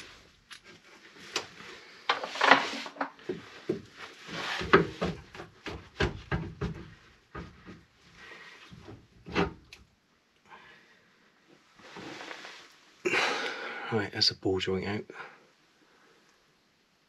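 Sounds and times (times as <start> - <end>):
wooden plank knocking and creaking: 4.6 - 7.9.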